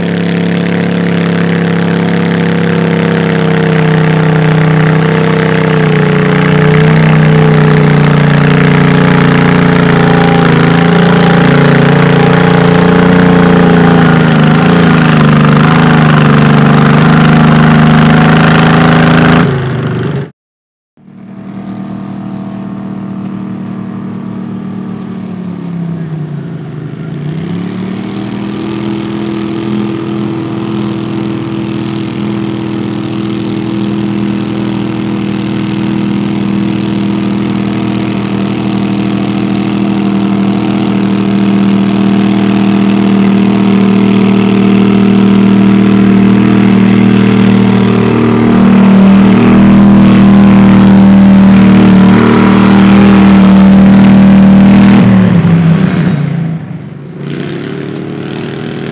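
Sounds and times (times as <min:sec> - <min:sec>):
garden tractor engine revving: 0:00.0 - 0:20.2, 0:27.0 - 0:58.9.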